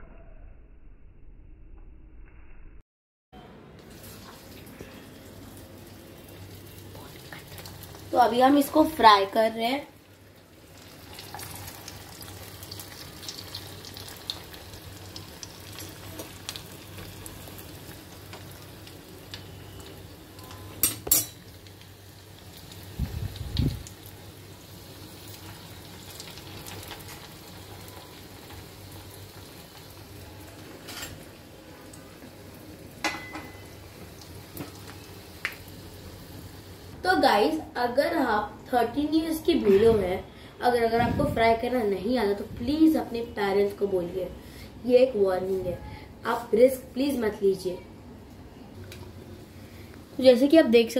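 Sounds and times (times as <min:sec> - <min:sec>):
food sizzling in hot oil: 0:03.9 - 0:37.5.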